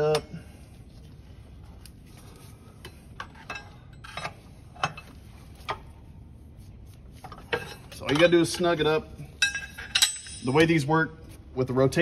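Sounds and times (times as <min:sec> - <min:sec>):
metal tools clinking: 0:07.5 - 0:10.8.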